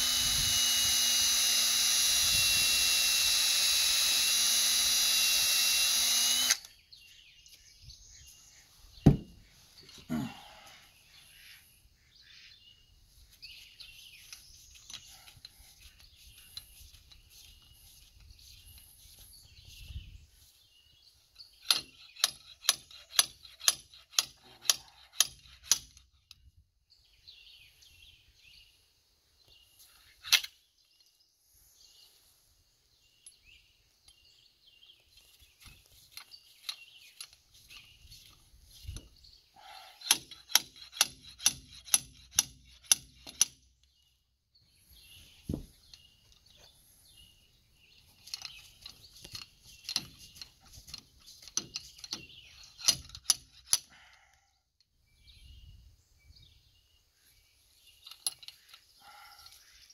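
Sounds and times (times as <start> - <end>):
loud knock on metal: 9.0 - 9.3.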